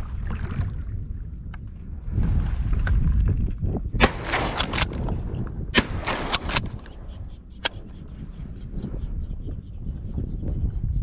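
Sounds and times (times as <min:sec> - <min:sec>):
low wind noise: 0:00.0 - 0:11.0
shotgun shots with echo: 0:04.0 - 0:05.0, 0:05.8 - 0:06.8.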